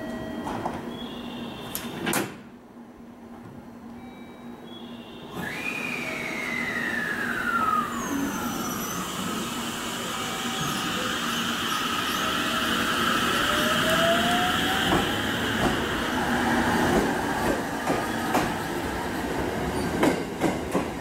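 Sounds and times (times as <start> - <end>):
train motor whine rising: 5.3 - 17.2.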